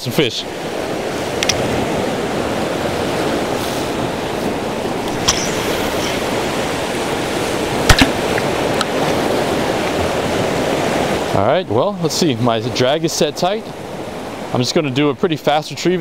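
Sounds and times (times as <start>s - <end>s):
surf washing on rocks: 0.0s - 16.0s
sharp clicks: 1.4s - 1.6s, 5.1s - 6.1s, 7.9s - 8.9s.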